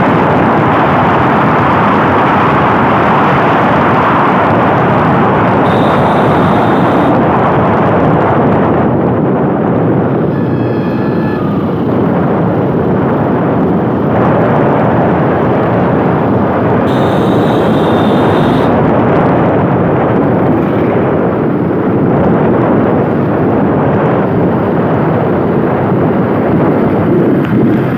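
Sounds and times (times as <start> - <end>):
vehicle road noise: 0.0 - 27.9
wind rushing over microphone: 0.0 - 27.9
short high-pitched tone: 5.6 - 7.2, 10.3 - 11.8, 16.9 - 18.8.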